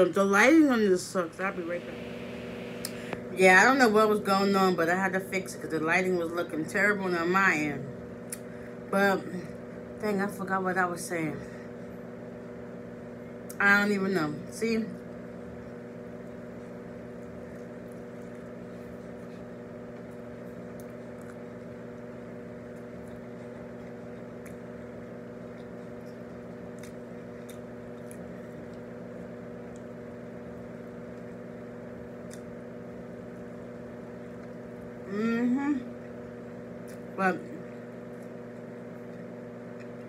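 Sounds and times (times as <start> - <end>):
mechanical hum: 0.0 - 40.0
wet chewing clicks: 20.0 - 30.0.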